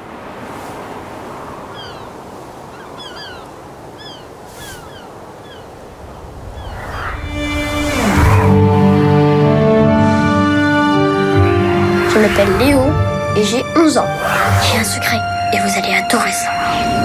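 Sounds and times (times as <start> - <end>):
windy rush: 0.0 - 17.0
music: 7.2 - 17.0.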